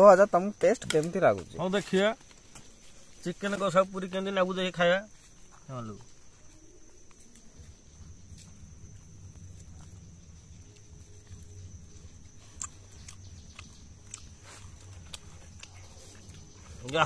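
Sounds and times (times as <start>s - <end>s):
man chewing noisily: 7.2s - 17.0s.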